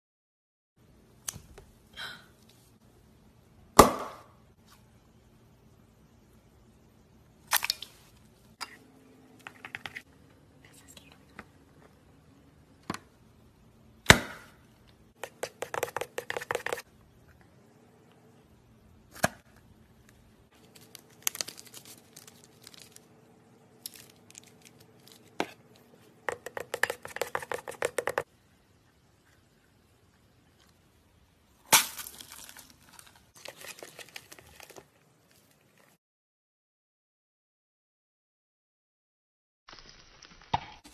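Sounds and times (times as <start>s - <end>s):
slime crackling and popping: 31.7s - 34.8s.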